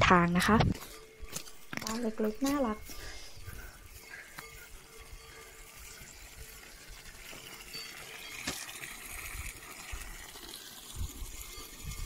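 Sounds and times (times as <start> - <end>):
water splashing from tap into trough: 6.4 - 12.0.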